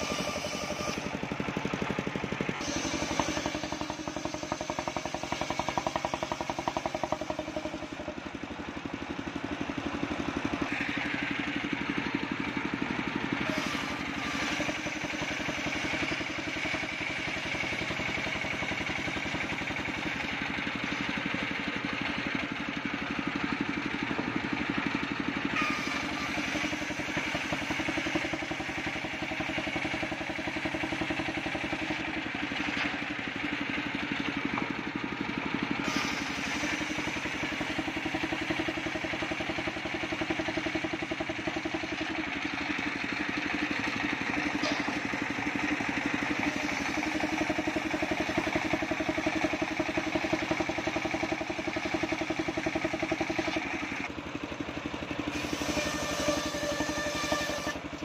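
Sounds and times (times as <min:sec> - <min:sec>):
saw mill engine running: 0:00.0 - 0:58.0.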